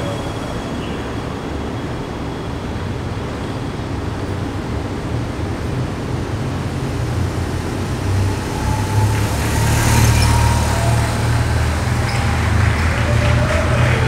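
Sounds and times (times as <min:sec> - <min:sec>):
street noise: 0:00.0 - 0:14.0
vehicle engine rumbling: 0:00.0 - 0:14.0.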